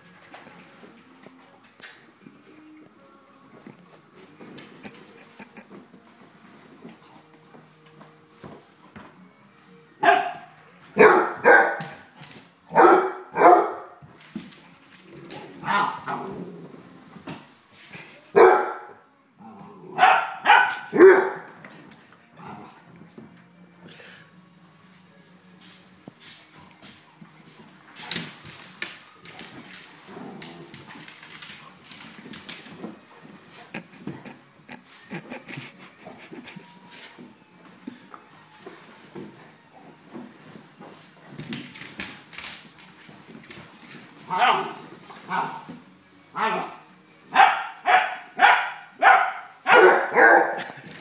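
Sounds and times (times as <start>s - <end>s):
dogs barking: 10.0s - 12.1s, 12.7s - 14.0s, 15.6s - 16.4s, 18.4s - 19.0s, 19.9s - 21.6s, 44.3s - 45.7s, 46.4s - 50.8s
puppies grunting and growling: 14.9s - 17.1s, 19.4s - 20.1s, 21.8s - 23.0s, 29.9s - 31.2s
scuffling and rustling: 24.9s - 46.0s.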